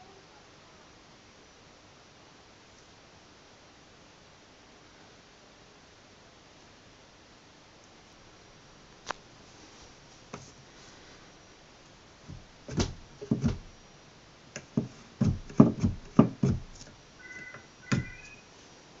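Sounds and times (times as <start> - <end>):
pull-up bar rattling against door frame: 12.3 - 13.7, 14.6 - 16.9.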